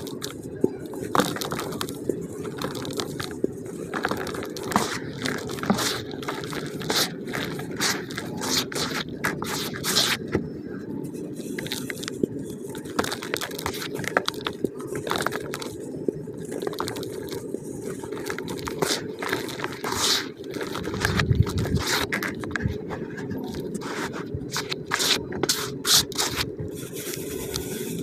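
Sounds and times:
hands crumbling cement in bucket: 1.0s - 3.3s, 3.9s - 10.3s.

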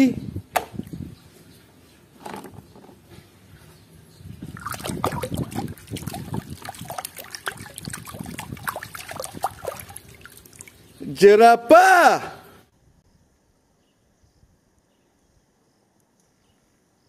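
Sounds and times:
water sloshing in plastic basin: 4.4s - 11.0s.

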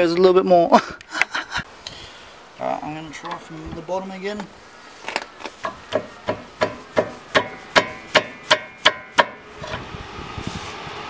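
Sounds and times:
steady rumble: 7.8s - 11.0s.

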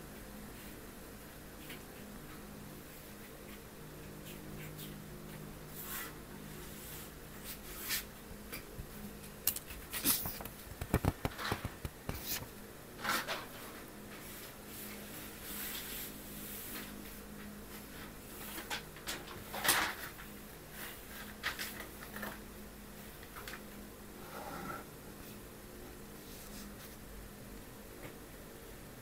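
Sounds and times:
book pages rustling: 9.8s - 12.5s.

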